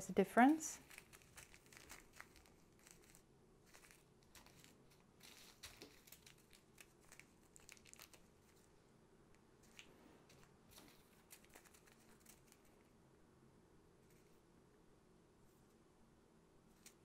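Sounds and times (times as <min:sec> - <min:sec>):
plastic bags crinkling: 0:00.7 - 0:08.6
soft ticks and rustles: 0:00.8 - 0:08.7.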